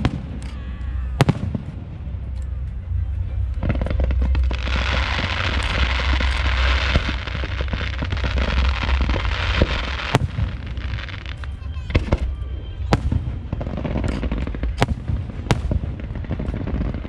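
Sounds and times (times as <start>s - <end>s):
fireworks crackling and popping: 0.0s - 17.0s
firework bang: 3.6s - 11.3s.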